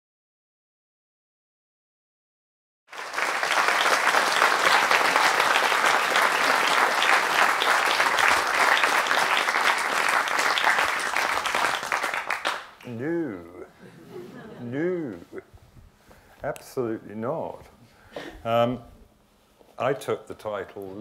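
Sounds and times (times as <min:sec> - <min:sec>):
audience applause: 0:02.9 - 0:12.9.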